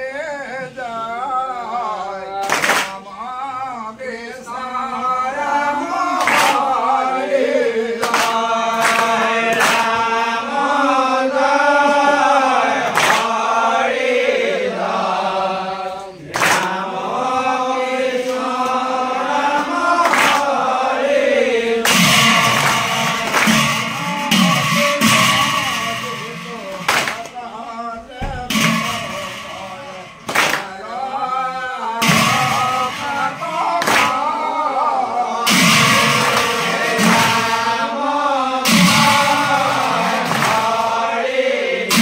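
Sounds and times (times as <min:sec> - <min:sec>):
hand claps: 0:02.4 - 0:03.1, 0:06.0 - 0:10.7, 0:11.5 - 0:14.0, 0:16.2 - 0:27.4, 0:28.2 - 0:31.0, 0:32.0 - 0:34.5, 0:35.5 - 0:37.9, 0:38.7 - 0:41.1
group of voices chanting: 0:04.1 - 0:42.0.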